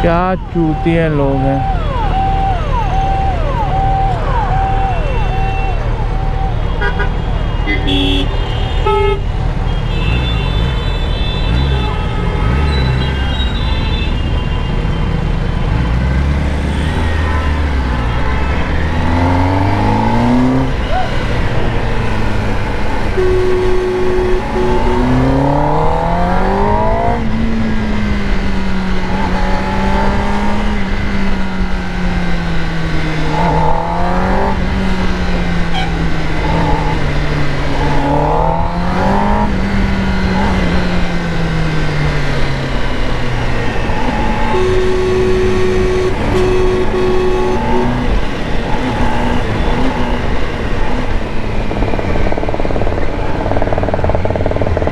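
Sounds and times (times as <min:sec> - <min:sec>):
motorcycle engine revving: 0:15.2 - 0:54.9.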